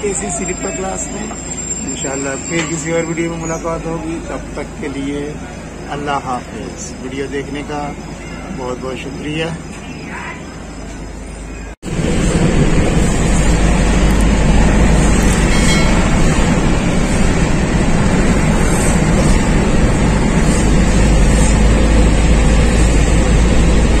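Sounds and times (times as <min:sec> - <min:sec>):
car road and engine noise: 0:10.5 - 0:24.0.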